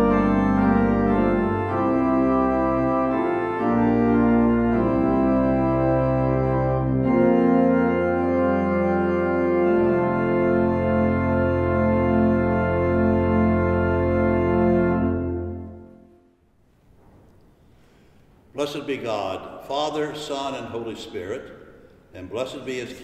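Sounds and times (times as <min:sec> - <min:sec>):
church organ chords: 0:00.0 - 0:16.5.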